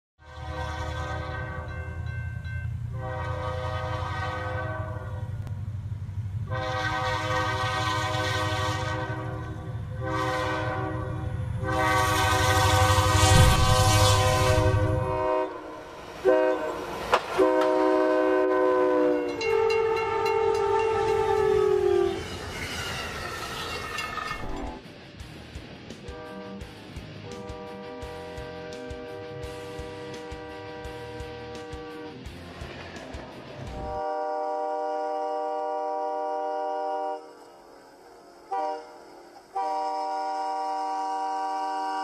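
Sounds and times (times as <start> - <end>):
locomotive air horn blasts: 0.2 - 1.9, 2.9 - 5.4, 6.4 - 22.6, 26.0 - 32.2, 33.8 - 37.6, 38.2 - 42.0
heavy low rumble: 13.0 - 15.9.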